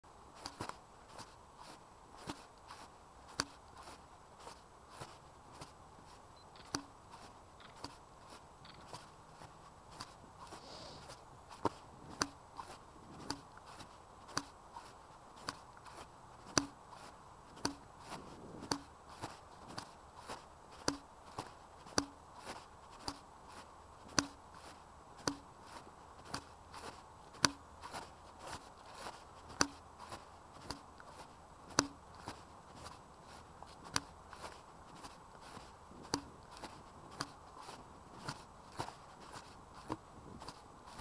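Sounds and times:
faint hiss: 0.1 - 26.1
soft footstep thuds: 0.3 - 41.0
camera clicking from footsteps: 0.4 - 41.0.

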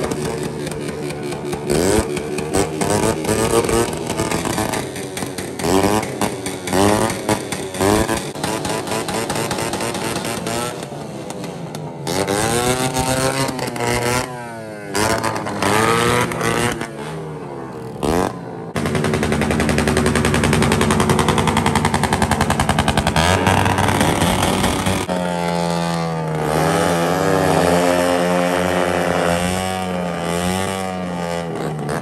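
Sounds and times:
exhaust backfire pops: 0.0 - 14.3, 18.7 - 26.9
motorcycle engine revving: 0.0 - 32.0.

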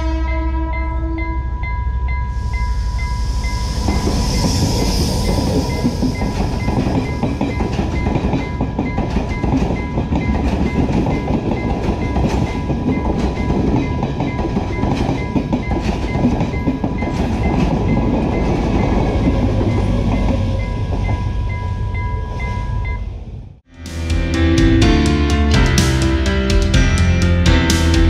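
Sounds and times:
level crossing warning beeps: 1.2 - 23.2
train wheels clattering over rail joints: 4.4 - 21.1.

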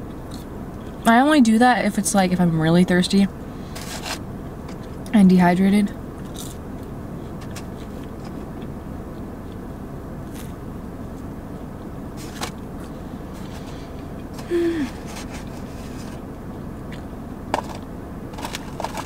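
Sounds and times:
low rumble inside car: 0.0 - 19.0
person humming: 14.4 - 15.2.

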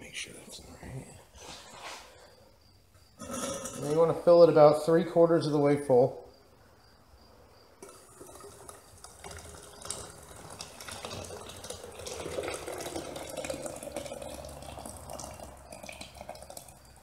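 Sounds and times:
plaster mix pouring into steel can: 7.8 - 16.9.

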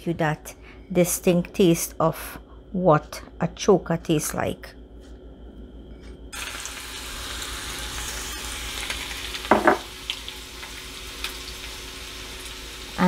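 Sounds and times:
garlic sizzling in hot oil: 6.4 - 13.0.

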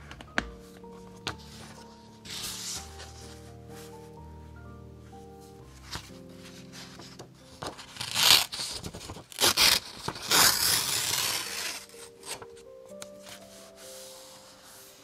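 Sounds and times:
paper page tearing: 6.8 - 12.5.

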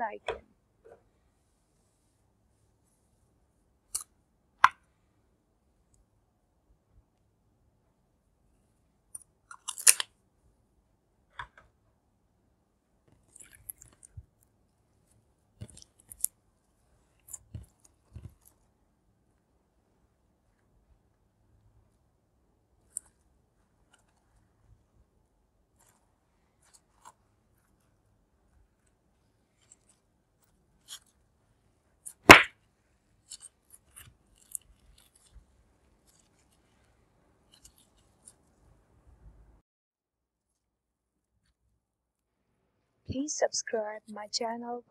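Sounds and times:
slime air pop: 32.2 - 32.5.

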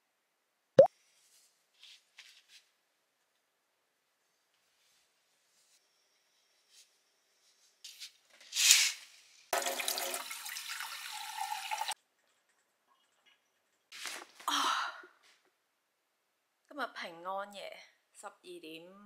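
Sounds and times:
water running: 9.6 - 12.0.

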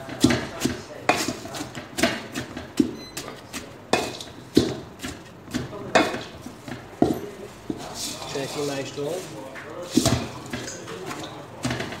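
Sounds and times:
wooden spatula knocking metal bowl: 0.0 - 7.2.

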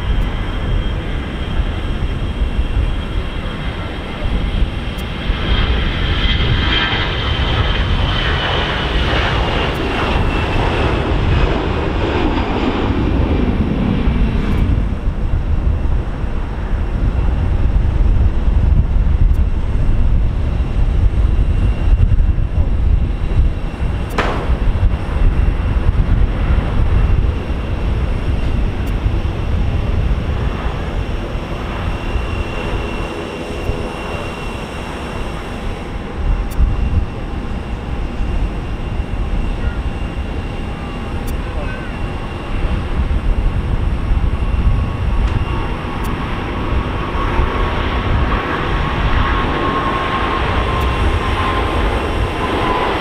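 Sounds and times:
high jet engine whine: 0.0 - 53.0
jet airliner taking off: 0.0 - 53.0
low rumble: 1.7 - 33.0.

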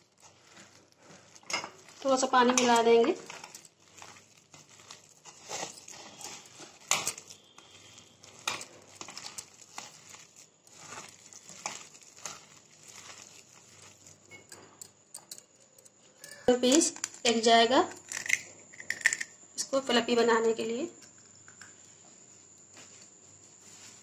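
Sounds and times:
hand squishing batter: 0.0 - 14.4.

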